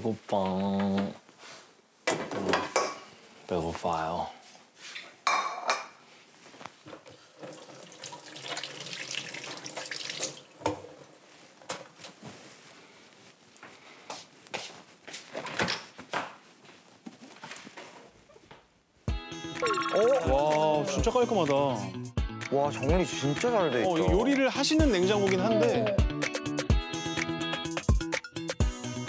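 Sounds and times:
faucet running into metal sink: 7.3s - 10.8s.

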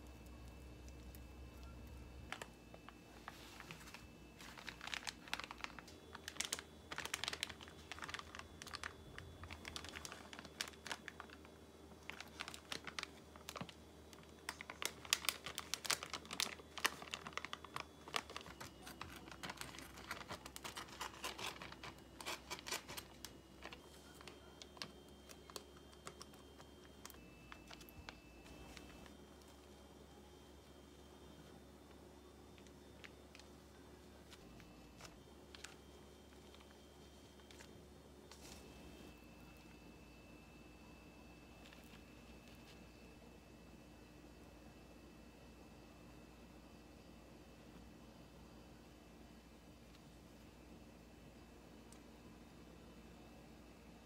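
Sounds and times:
plastic wrap crinkling: 0.0s - 39.8s, 41.6s - 43.0s
seaweed sheets crackling: 0.2s - 29.7s, 34.2s - 38.9s.

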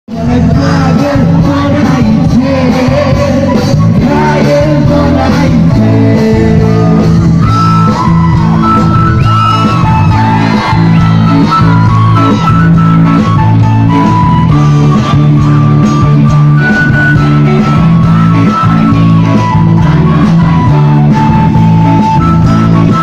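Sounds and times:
loud music with singing: 0.1s - 23.0s
crowd shouting: 6.8s - 13.4s, 14.9s - 22.1s.

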